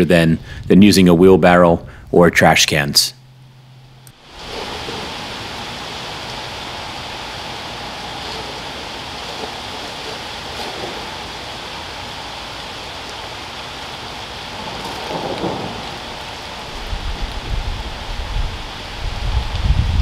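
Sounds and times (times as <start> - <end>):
rain on pavement and leaves: 4.1 - 20.0
low rumble: 14.4 - 20.0.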